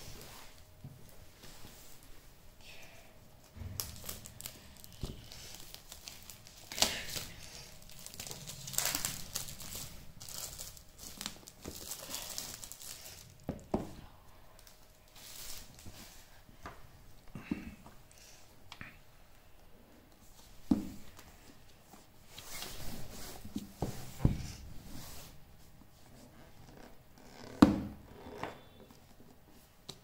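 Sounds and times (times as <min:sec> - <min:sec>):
plastic film crumpled in hand: 0:03.8 - 0:13.5
plastic wrap crinkling and tearing: 0:03.8 - 0:13.7.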